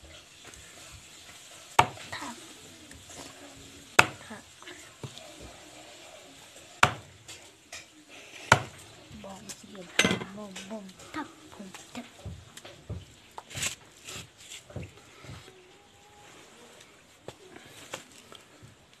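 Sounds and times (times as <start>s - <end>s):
knife chopping on wooden block: 1.8s - 2.0s, 4.0s - 4.2s, 6.8s - 7.0s, 8.5s - 8.8s.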